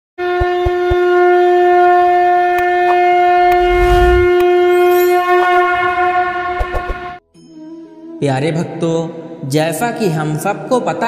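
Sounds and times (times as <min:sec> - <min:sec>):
brief whoosh: 0:03.4 - 0:05.2.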